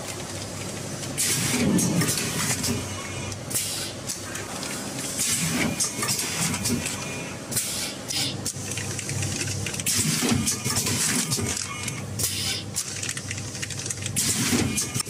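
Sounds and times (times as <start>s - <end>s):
packing machine clatter and hum: 0.0s - 15.0s.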